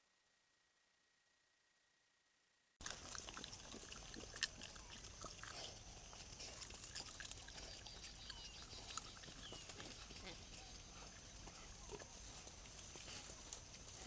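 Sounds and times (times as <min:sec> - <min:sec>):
boar grunts and squeaks: 0:02.8 - 0:12.2.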